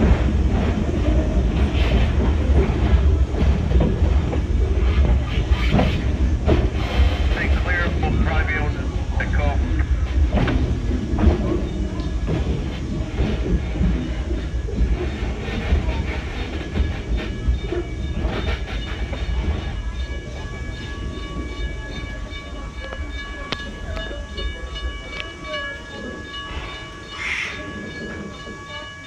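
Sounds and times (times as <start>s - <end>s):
train wheels rumbling on track: 0.0s - 29.0s
faint high steady tones: 7.3s - 10.2s.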